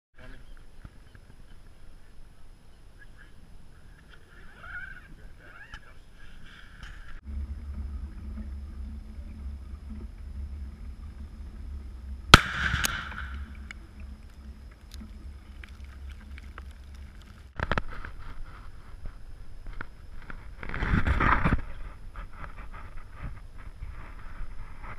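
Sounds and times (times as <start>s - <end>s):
exploding target bang: 12.3s - 13.6s
rifle shot crack: 12.3s - 13.6s.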